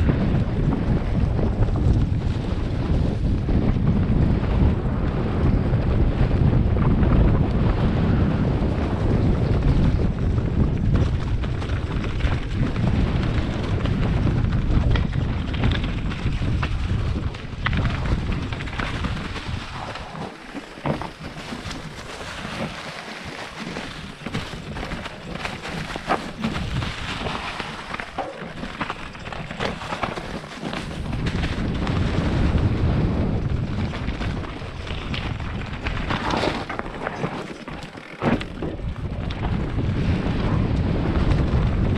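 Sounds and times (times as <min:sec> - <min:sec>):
bike rattling and knocking: 0:00.0 - 0:41.9
wind buffeting microphone: 0:00.0 - 0:41.9
tyres crunching over leaves and dirt: 0:17.7 - 0:38.8.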